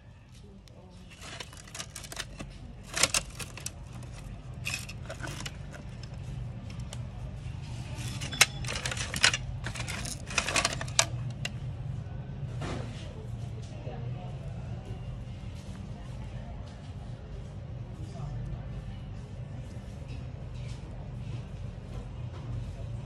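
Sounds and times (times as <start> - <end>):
metal parts clattering: 1.1 - 6.9, 8.0 - 11.5.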